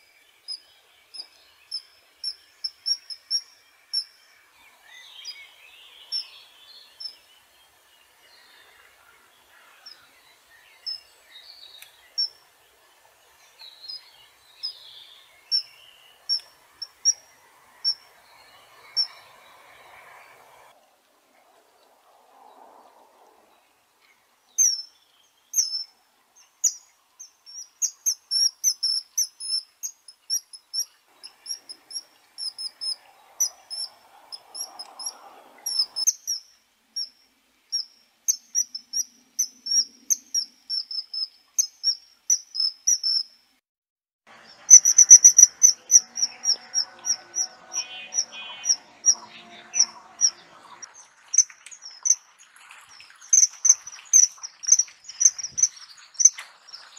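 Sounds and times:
kingfisher calling: 15.5 - 20.6, 31.2 - 36.4, 44.7 - 52.3.

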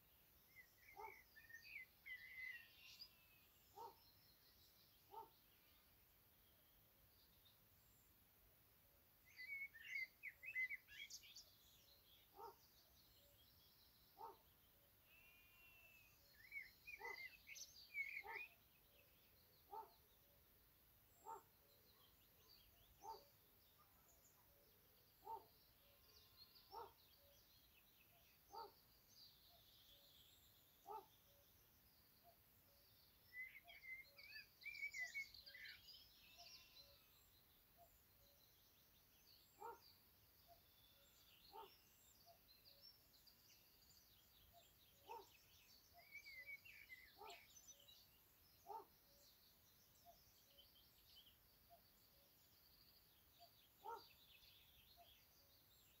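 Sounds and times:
small birds chirping and trilling: 0.0 - 56.0.

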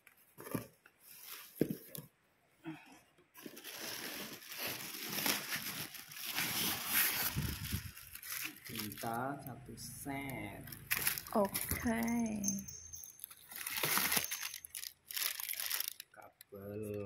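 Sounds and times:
plastic wrap crinkling: 3.4 - 9.5, 10.7 - 16.2.

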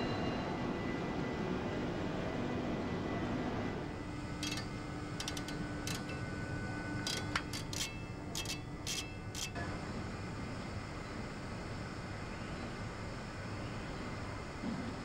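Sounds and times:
metal parts clinking: 4.4 - 6.1, 7.1 - 9.6
workshop noise: 7.0 - 9.6.

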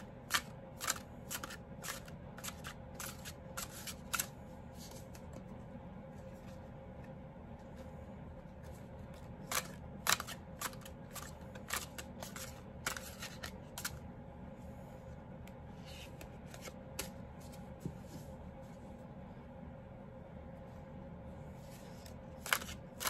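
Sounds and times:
cards being shuffled: 0.0 - 5.5, 8.5 - 14.0, 15.8 - 18.2, 21.6 - 23.0
steady low hum: 0.0 - 23.0.

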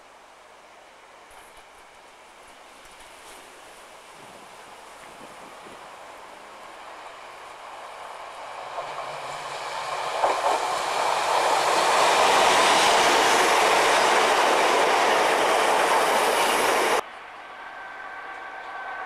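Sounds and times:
train passing close by: 0.0 - 19.0.

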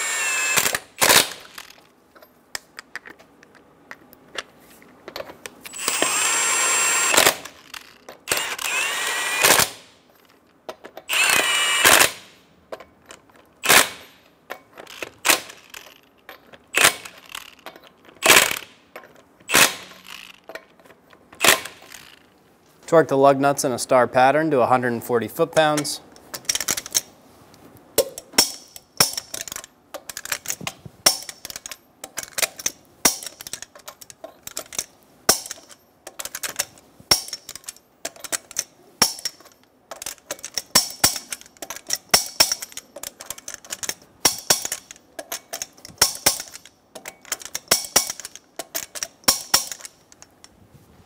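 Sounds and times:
torque wrench ratcheting clicks: 0.0 - 1.8, 5.7 - 9.8, 11.0 - 12.2, 14.8 - 16.1, 16.8 - 18.7, 19.5 - 20.7, 21.4 - 22.3, 28.4 - 50.4.

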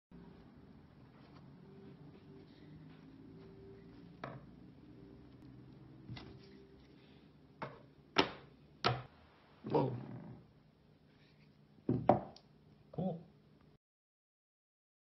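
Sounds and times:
mallet knocking on wooden table: 11.9 - 12.4.

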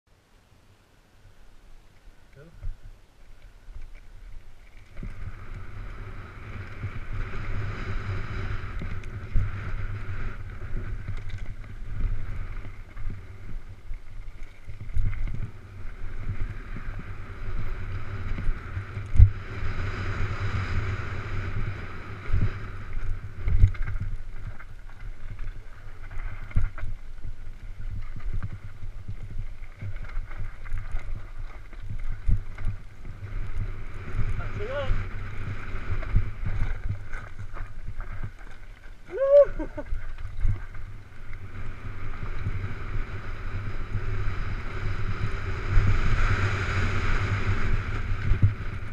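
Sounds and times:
wind rumbling on microphone: 0.1 - 48.9
tyres rolling over dirt and stones: 22.9 - 41.4.

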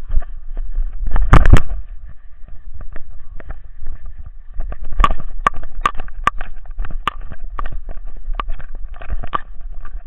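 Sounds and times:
low rumble of movement: 0.0 - 10.0
camera rattling in mount: 4.6 - 10.0.

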